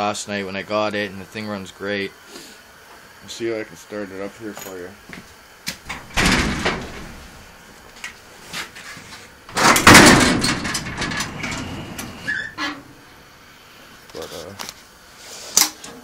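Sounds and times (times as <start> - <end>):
garage door rattling: 5.8 - 7.5, 9.5 - 13.0.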